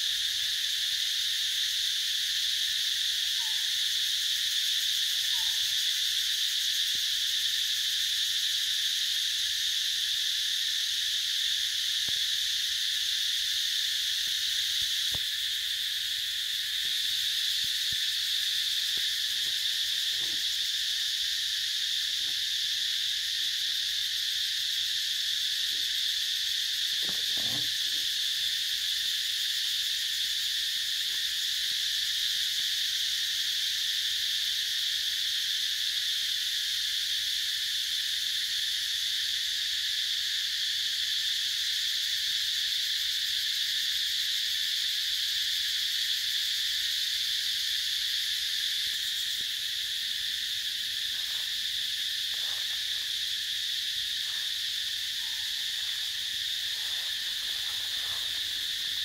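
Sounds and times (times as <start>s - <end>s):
insects droning: 0.0s - 59.0s
faint chirps: 54.0s - 59.0s.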